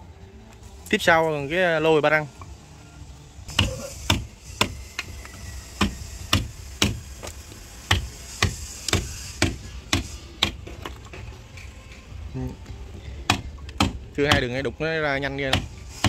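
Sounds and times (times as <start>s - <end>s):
hammer striking wood chisel: 3.5s - 10.8s, 13.2s - 14.5s, 15.4s - 16.0s.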